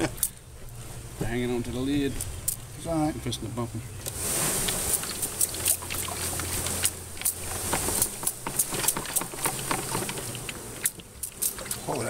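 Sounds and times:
low steady hum: 0:00.0 - 0:12.0
knocks on wooden box: 0:07.6 - 0:10.2.

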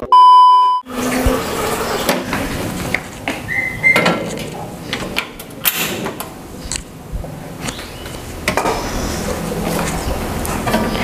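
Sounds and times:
test-tone beep: 0:00.0 - 0:00.8.

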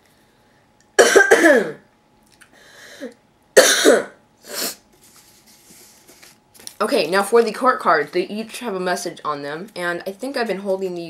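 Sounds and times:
man coughing: 0:01.0 - 0:01.8, 0:03.6 - 0:04.2.

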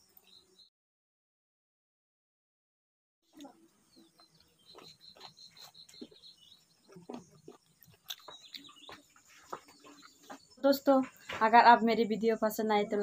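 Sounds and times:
bird chirping: 0:00.0 - 0:00.7, 0:03.3 - 0:13.0
chewing and mouth sounds: 0:06.9 - 0:10.3
soft mouth clicks and smacks: 0:07.6 - 0:08.8.

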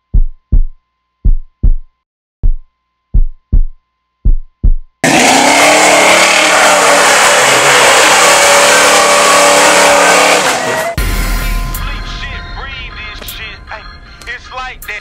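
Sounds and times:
heartbeat thumps: 0:00.0 - 0:05.0
car engine at high revs: 0:05.0 - 0:10.8
tires spinning: 0:05.0 - 0:11.0.

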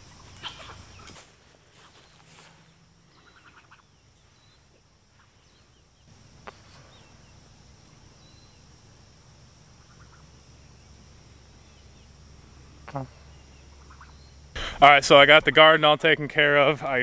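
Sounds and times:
steady high hum: 0:00.0 - 0:17.0
faint bird chirps: 0:01.8 - 0:08.8, 0:09.7 - 0:14.5.

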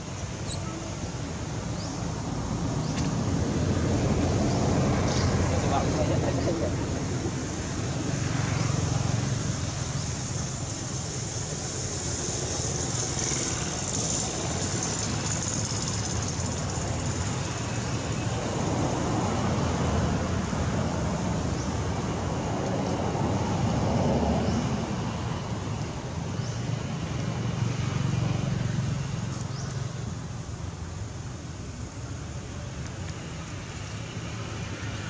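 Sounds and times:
high hiss: 0:07.5 - 0:18.5.

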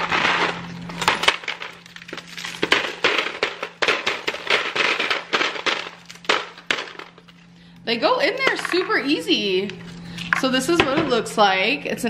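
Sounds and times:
ice cracking in plastic tray: 0:00.0 - 0:07.4
steady low hum: 0:00.0 - 0:12.0.

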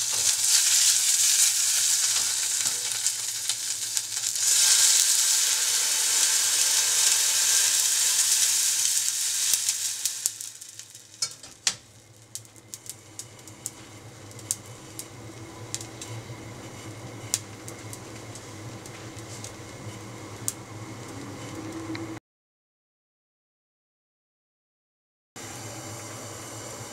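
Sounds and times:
water hissing in hot pan: 0:00.0 - 0:21.4
gas burner humming: 0:00.0 - 0:22.2, 0:25.4 - 0:26.9
water popping in pan: 0:06.2 - 0:12.0.

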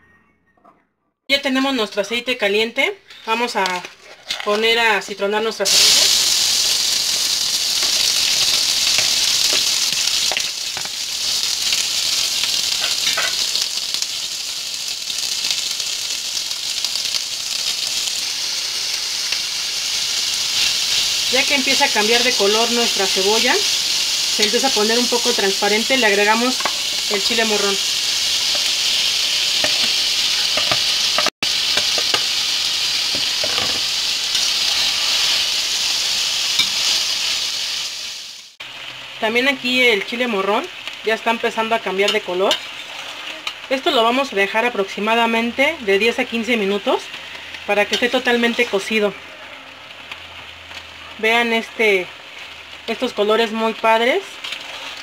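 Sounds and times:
onions sizzling in oil: 0:03.1 - 0:55.0.

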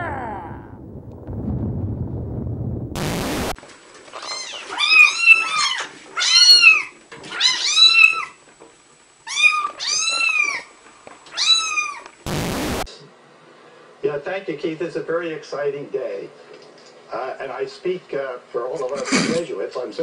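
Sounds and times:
static hiss: 0:03.0 - 0:03.6, 0:12.1 - 0:13.0
kittens meowing: 0:04.2 - 0:08.3, 0:09.3 - 0:10.7, 0:11.3 - 0:12.0.

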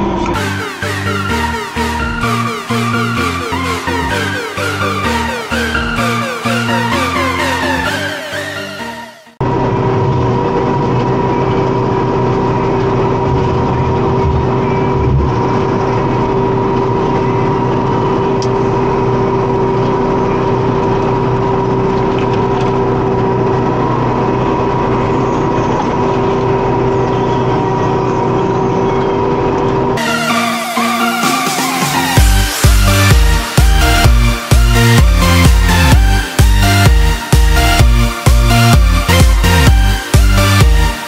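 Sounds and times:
tractor with flail mower droning: 0:00.0 - 0:07.6, 0:09.4 - 0:30.0.

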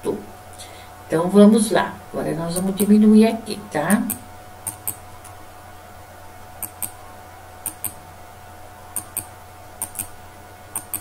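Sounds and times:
faint steady hum: 0:00.0 - 0:11.0
computer mouse clicks: 0:04.1 - 0:05.0, 0:06.6 - 0:07.0, 0:07.6 - 0:08.0, 0:09.0 - 0:11.0.

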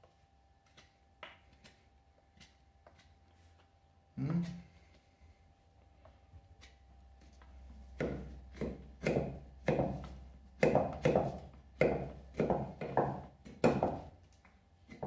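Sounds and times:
knife chopping wood: 0:07.9 - 0:14.2.

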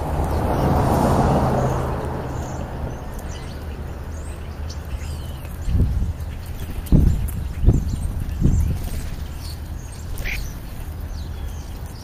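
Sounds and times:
vehicle passing: 0:00.0 - 0:06.1
low engine hum: 0:00.0 - 0:12.0
starlings whistling: 0:01.4 - 0:12.0.

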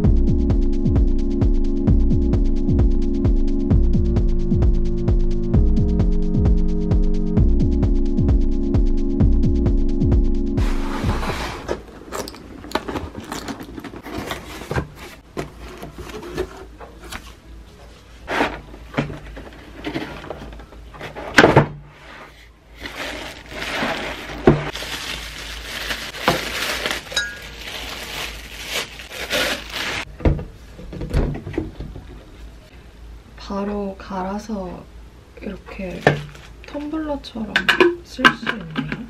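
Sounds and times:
cardboard box opening: 0:10.6 - 0:17.2
plastic wrapping rustling: 0:10.6 - 0:17.4, 0:22.8 - 0:30.1, 0:35.9 - 0:37.0.

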